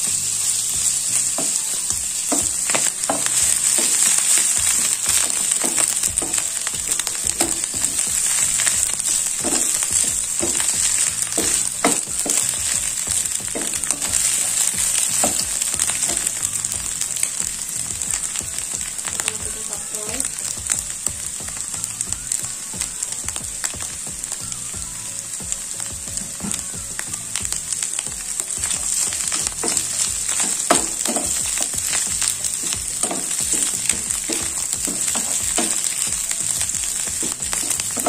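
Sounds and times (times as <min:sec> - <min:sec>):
food sizzling in a frying pan: 0:00.0 - 0:38.0
wooden spatula scraping a pan: 0:00.9 - 0:16.5, 0:28.4 - 0:38.0.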